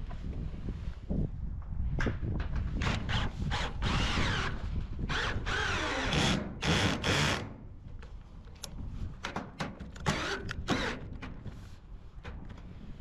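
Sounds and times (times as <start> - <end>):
power drill driving screws into metal: 2.8 - 7.6, 10.0 - 11.3.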